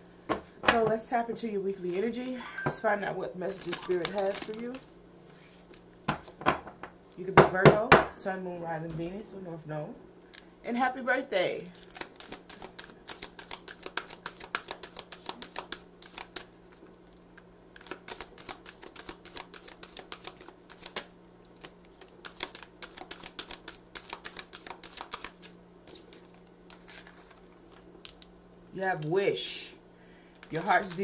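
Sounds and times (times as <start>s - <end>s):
cards being shuffled: 3.5s - 6.4s, 11.8s - 28.4s, 30.4s - 31.0s.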